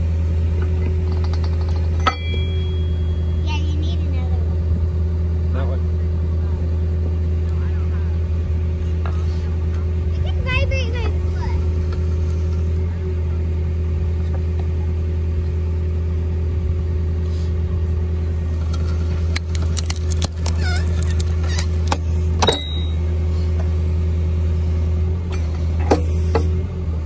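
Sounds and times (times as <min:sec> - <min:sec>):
hydraulic power unit engine: 0:00.0 - 0:27.0.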